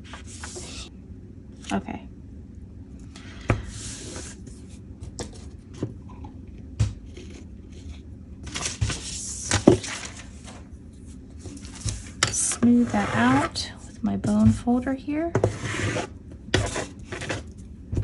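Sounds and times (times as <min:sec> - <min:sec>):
magazine page rustling: 0:08.5 - 0:10.6.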